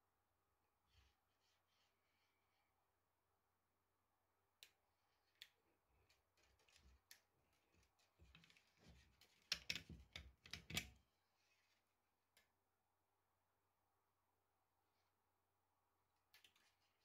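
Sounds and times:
taps and scrapes: 6.0s - 10.9s
fingers clicking plastic parts: 8.2s - 11.0s.

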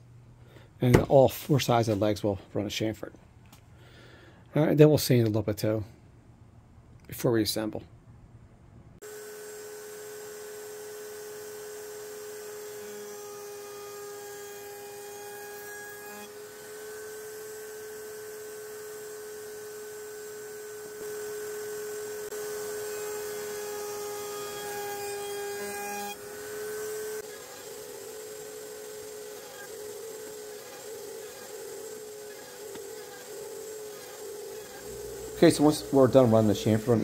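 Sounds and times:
wood router whining: 9.0s - 37.0s.

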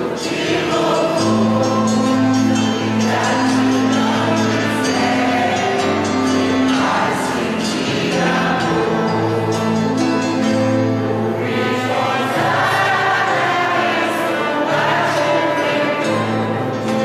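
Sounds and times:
choir singing a hymn: 0.0s - 17.0s
sustained instrumental accompaniment: 0.0s - 17.0s.

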